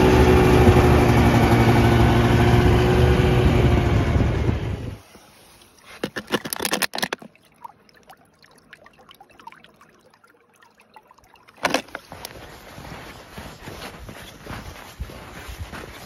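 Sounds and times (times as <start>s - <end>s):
water gurgling into bottle: 5.9s - 12.1s
crackling clicks: 6.0s - 7.3s.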